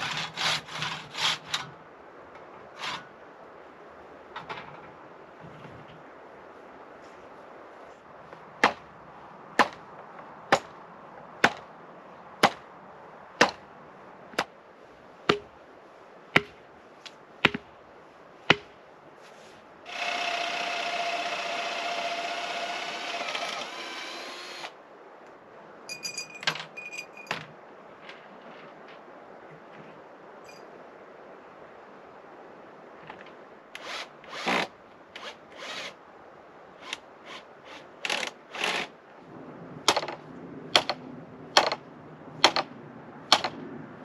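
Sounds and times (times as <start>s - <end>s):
hammer knocks: 15.3s - 15.5s, 16.4s - 16.6s, 18.5s - 18.7s
power drill running: 19.9s - 24.8s
metallic clinks: 25.9s - 27.4s.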